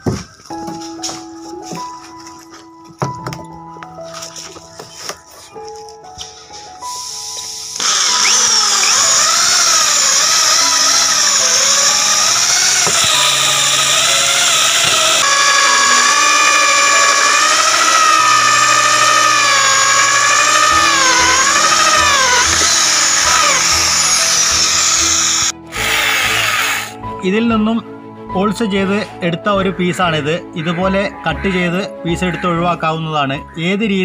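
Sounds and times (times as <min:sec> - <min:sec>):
background music: 0:00.0 - 0:34.0
electric drill cutting plastic: 0:06.8 - 0:27.0.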